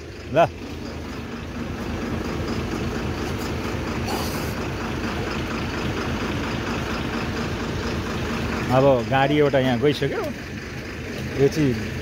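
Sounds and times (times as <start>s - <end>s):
vehicle engine running: 0.0s - 12.0s
brief high hiss: 4.0s - 4.6s.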